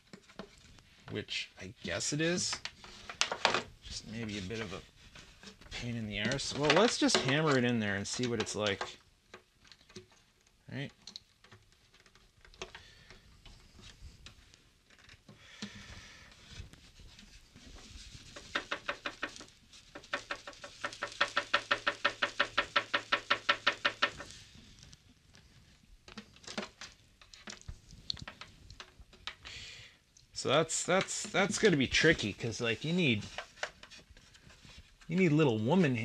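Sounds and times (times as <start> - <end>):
rapid run of clicks: 18.4 - 24.3.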